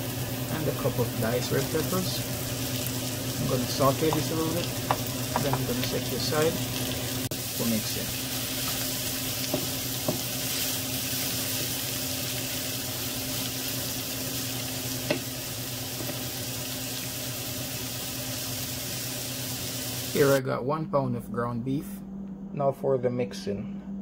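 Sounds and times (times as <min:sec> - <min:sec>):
vegetables sizzling in oil: 0:00.0 - 0:20.4
wooden spoon knocking pan: 0:04.0 - 0:05.8.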